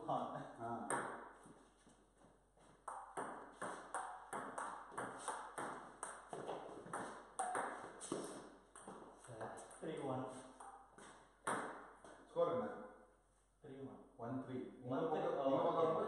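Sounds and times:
ping pong ball hitting paddles: 0.8s - 1.4s, 2.8s - 9.8s, 10.5s - 12.2s.

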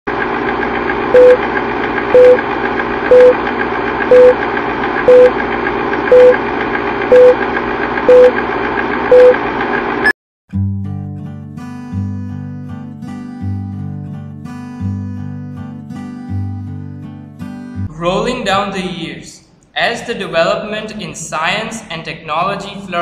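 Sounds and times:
film projector whirr: 0.1s - 10.1s
short beeps: 1.2s - 1.4s, 2.2s - 2.4s, 3.1s - 3.4s, 4.1s - 4.4s, 5.1s - 5.3s, 6.1s - 6.4s, 7.1s - 7.4s, 8.1s - 8.3s, 9.1s - 9.4s
acoustic guitar music: 10.5s - 23.0s.

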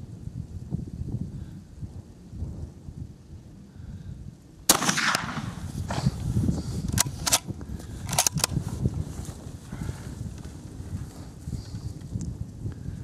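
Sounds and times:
wind rumbling on microphone: 0.0s - 13.0s
shotgun shot: 4.7s - 6.2s
metallic bolt clicks: 6.9s - 7.4s, 8.1s - 8.6s.

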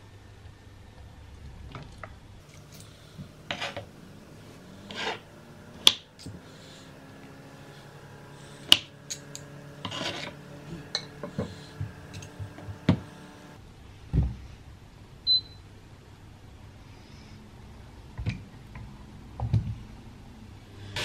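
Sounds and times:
knife and fork scraping cutting board: 2.6s - 3.9s, 4.8s - 6.0s, 8.6s - 12.3s.

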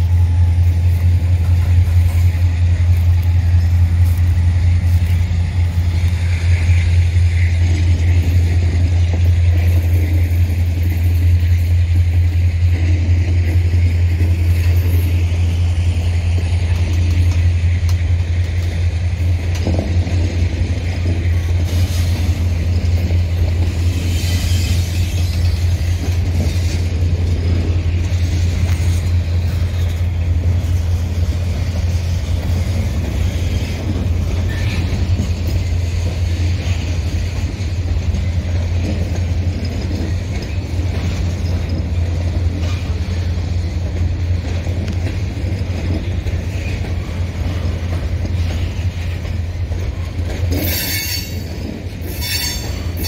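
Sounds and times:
freight train rumbling on rails: 0.0s - 53.0s
boxcars rattling and clanking: 16.4s - 53.0s
faint high wheel squeals: 34.4s - 35.2s, 50.5s - 53.0s.

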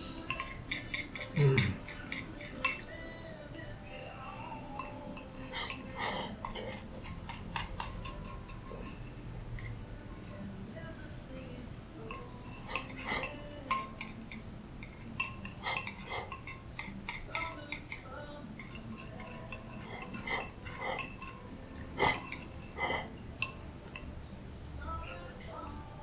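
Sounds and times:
chopsticks clicking on ceramic bowl: 4.8s - 9.0s.

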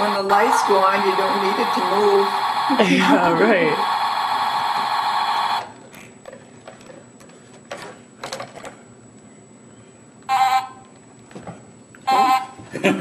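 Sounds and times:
steady electronic toy sound: 0.0s - 5.8s, 10.3s - 10.8s, 12.1s - 12.6s
electronic horn honk: 10.3s - 10.8s, 12.1s - 12.6s.

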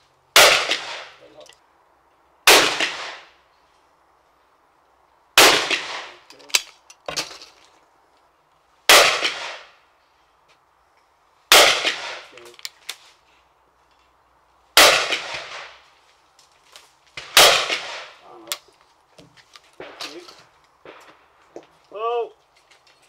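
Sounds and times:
shotgun shots echoing: 0.4s - 1.3s, 2.5s - 3.3s, 5.4s - 6.2s, 8.9s - 9.8s, 11.5s - 12.4s, 14.8s - 15.8s, 17.2s - 18.5s, 19.8s - 21.2s.

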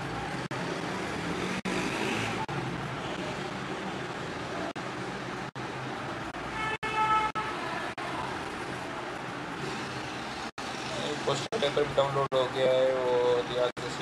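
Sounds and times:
road traffic noise: 0.0s - 14.0s.

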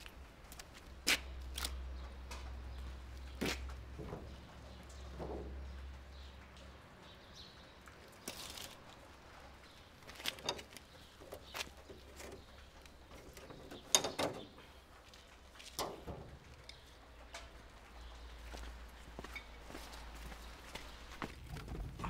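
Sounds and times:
car bonnet latch clicks and knocks: 13.3s - 14.6s.

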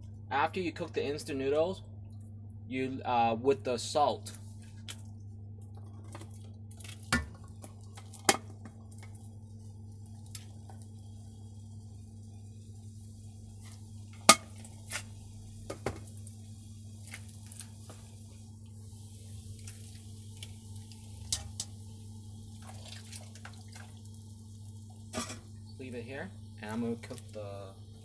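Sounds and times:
steady low hum: 0.0s - 28.0s
water dripping: 19.5s - 25.0s.

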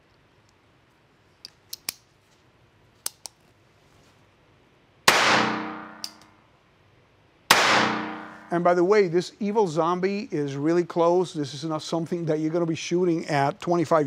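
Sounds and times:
small metallic clicks of pistol: 1.4s - 2.1s, 3.0s - 3.4s, 6.0s - 6.4s
pistol shot ringing indoors: 5.1s - 6.2s, 7.5s - 8.5s.

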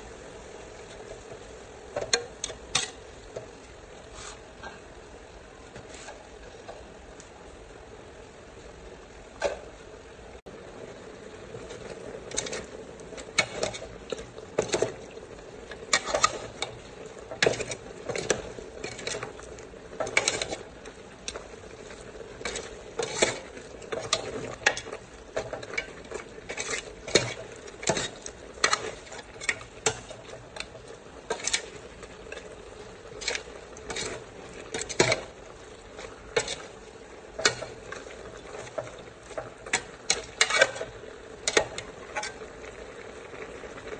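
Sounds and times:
food sizzling: 0.0s - 43.9s
metal ladle scraping pot: 2.0s - 3.5s, 11.6s - 42.4s.

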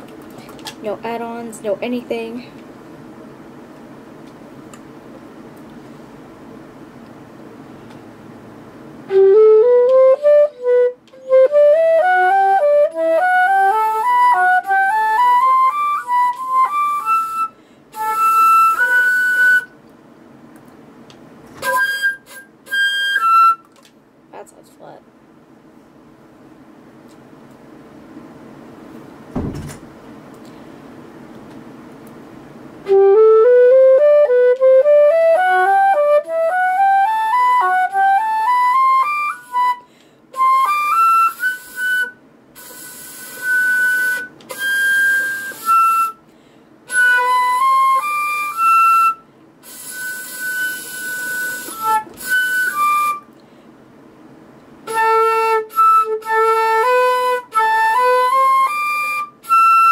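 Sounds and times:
solo flute playing: 9.0s - 19.8s, 21.6s - 23.8s, 32.8s - 46.2s, 46.9s - 53.3s, 54.8s - 59.9s
knock: 29.4s - 29.8s.

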